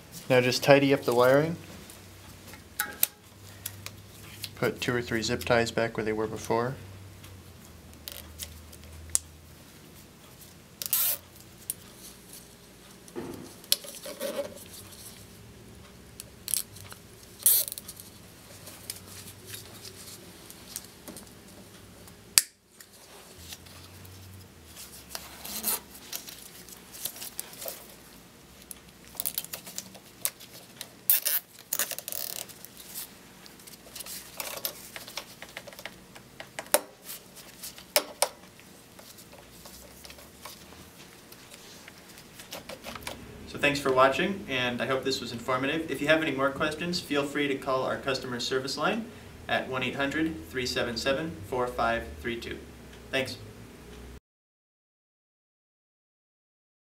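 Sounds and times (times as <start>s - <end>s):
zip ties ratcheting: 10.8s - 11.2s, 17.4s - 17.9s, 31.1s - 32.6s.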